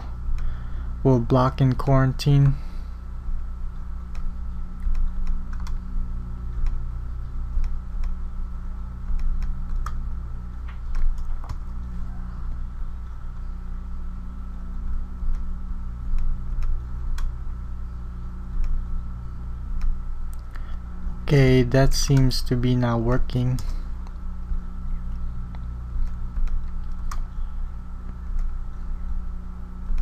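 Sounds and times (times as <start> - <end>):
steady low hum: 0.0 - 30.0
mouse and keyboard clicking: 4.1 - 5.8, 10.8 - 11.6.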